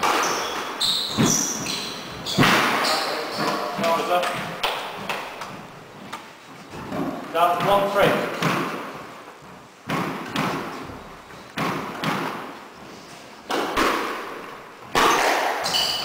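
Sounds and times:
squash ball thwacks echoing: 2.2s - 5.6s, 7.0s - 9.0s, 9.8s - 10.9s, 11.5s - 12.7s, 13.4s - 15.8s.

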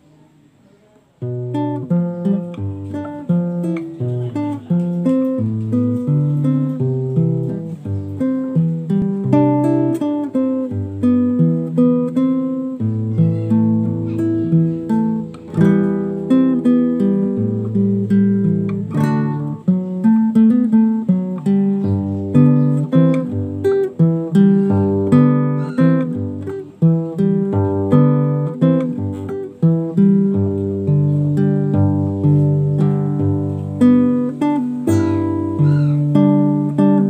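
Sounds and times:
classical guitar fingerstyle: 0.0s - 37.0s
strummed guitar chord: 12.8s - 37.0s.

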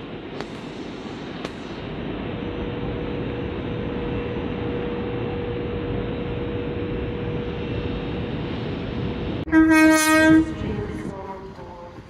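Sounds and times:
standing train rumble: 0.0s - 12.0s
train horn blast: 9.4s - 12.0s.

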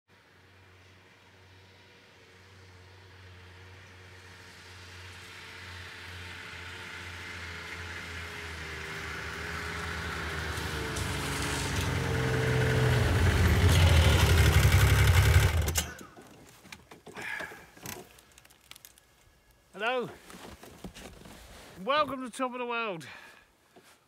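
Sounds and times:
snowmobile engine approaching: 0.2s - 16.2s.

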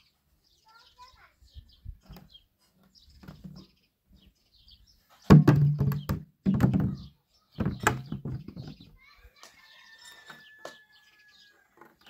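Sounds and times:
plastic jerrycan knocking on dirt: 5.3s - 8.9s.

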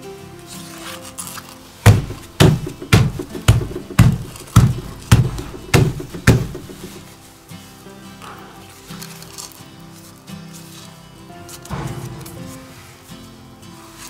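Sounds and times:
soft background music: 0.0s - 14.0s
hand patting on tabletop: 1.9s - 7.0s.

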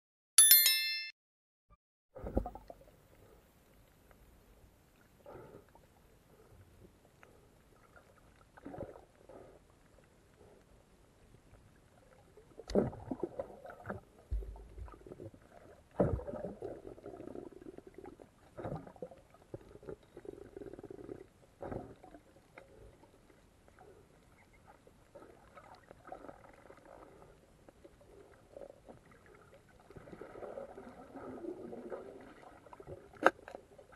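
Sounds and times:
underwater rushing and bubbling: 11.5s - 33.9s.

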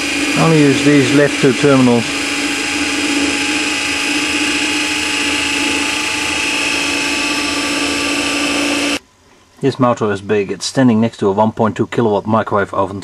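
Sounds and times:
electric motor humming: 0.0s - 9.0s
high-pitched motor whine: 0.0s - 9.0s.

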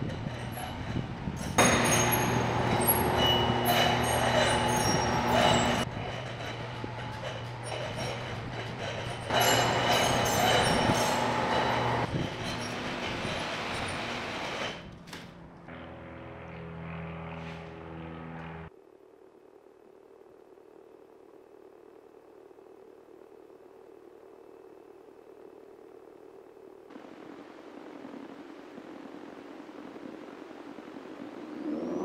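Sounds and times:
metal grinding and squealing: 0.0s - 15.0s
door motor hum: 1.6s - 12.1s.

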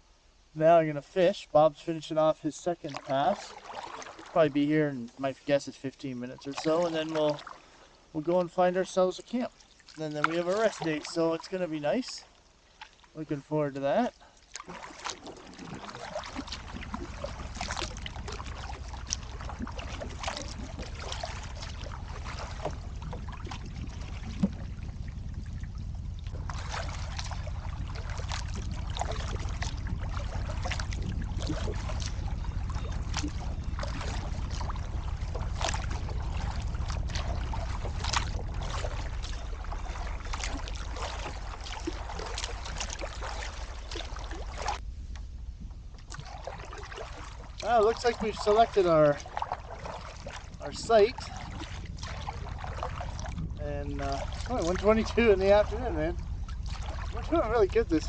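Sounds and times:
paddle splashing water: 1.0s - 45.3s, 45.9s - 58.0s
steady low rumble: 15.6s - 58.0s.

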